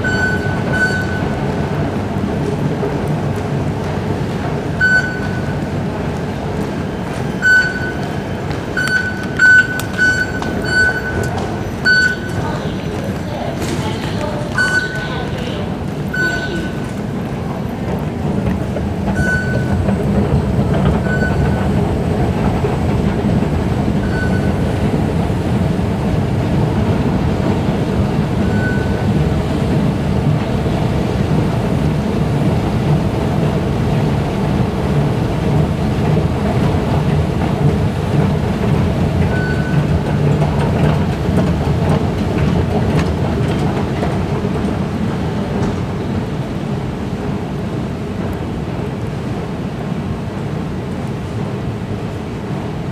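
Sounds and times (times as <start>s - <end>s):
short high beeps: 0.0s - 1.4s, 4.8s - 5.6s, 7.4s - 8.1s, 8.8s - 12.6s, 14.6s - 15.2s, 16.1s - 16.9s, 19.2s - 19.8s, 21.0s - 21.8s, 24.0s - 24.6s, 28.4s - 29.1s, 39.3s - 39.9s
metro station rumble: 0.0s - 52.9s.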